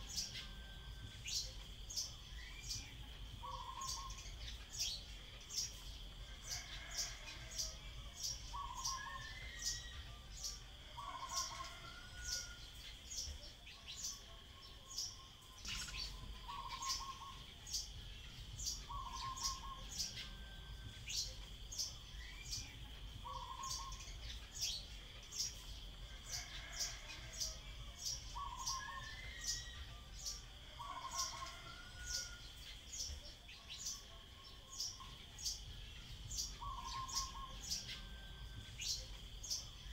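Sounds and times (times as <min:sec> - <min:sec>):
other birds' lower notes: 0:00.0 - 0:39.9.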